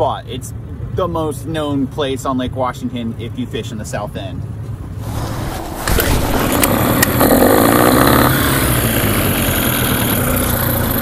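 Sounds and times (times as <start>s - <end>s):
outboard motor running: 4.8s - 11.0s.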